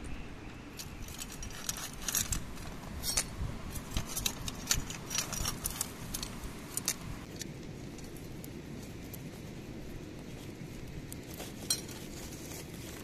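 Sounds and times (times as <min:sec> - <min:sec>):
low background noise: 0:00.0 - 0:13.0
metal shovel scraping embers: 0:00.7 - 0:08.0, 0:11.1 - 0:13.0.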